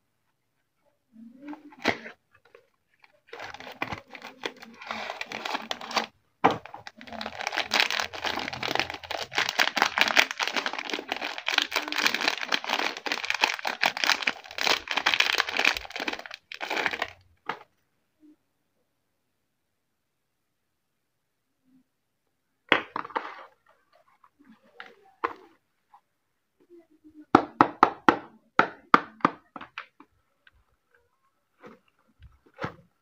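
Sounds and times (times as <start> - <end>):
paper and cardboard crinkling: 1.5 - 17.2.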